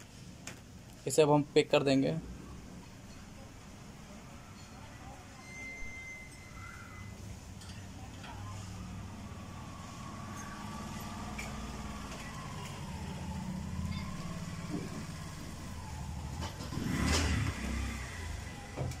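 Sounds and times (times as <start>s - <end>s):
thin wavering whine: 4.5s - 16.2s
engine-like drone: 8.2s - 19.0s.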